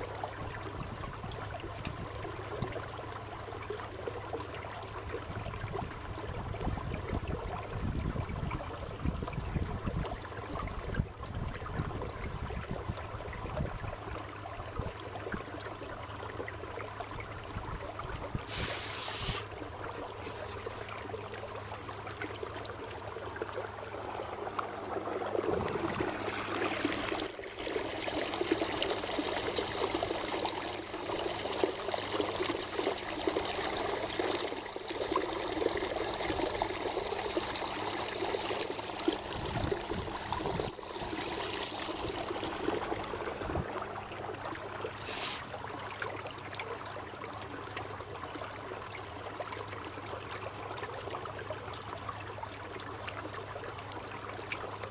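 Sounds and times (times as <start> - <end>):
water rushing and splashing: 17.0 - 47.8.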